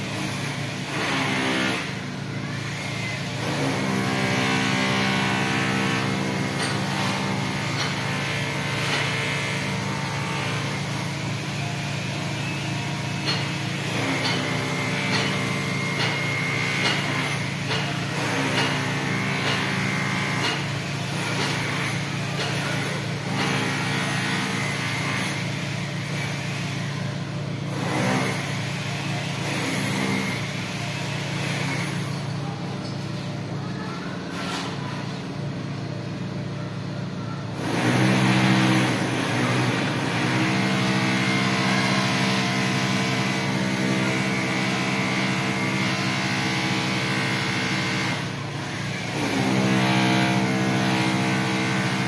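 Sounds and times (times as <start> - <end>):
steady motor hum: 0.0 - 52.0
faint voices: 32.3 - 37.6.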